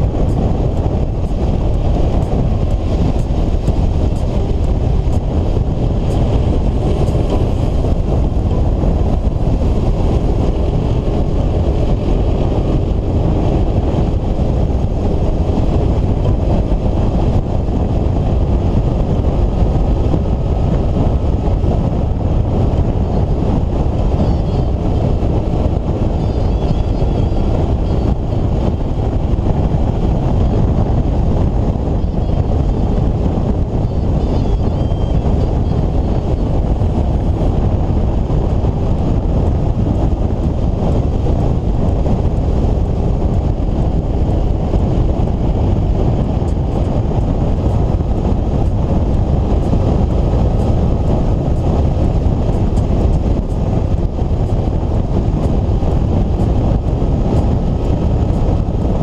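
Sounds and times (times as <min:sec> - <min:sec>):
faint engine hum: 0:00.0 - 0:59.0
wind rushing: 0:00.0 - 0:59.0.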